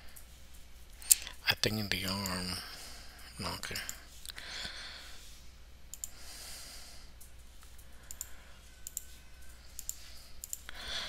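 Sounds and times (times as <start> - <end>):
low steady hum: 0.0 - 11.0
computer mouse clicking: 5.9 - 6.2, 7.2 - 10.7.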